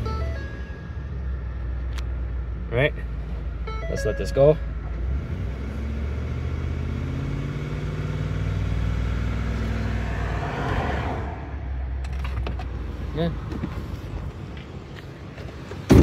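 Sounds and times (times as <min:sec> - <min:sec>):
engine accelerating: 0:03.2 - 0:13.2.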